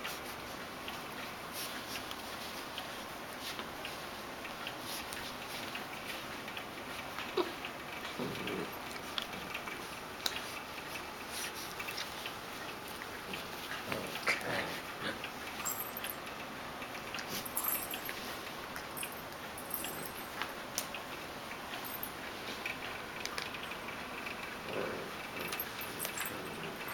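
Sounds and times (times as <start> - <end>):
puppies scuffling: 0.1 - 7.5, 8.1 - 16.3, 17.0 - 20.9
puppy vocal sounds: 7.0 - 16.2, 24.4 - 26.9.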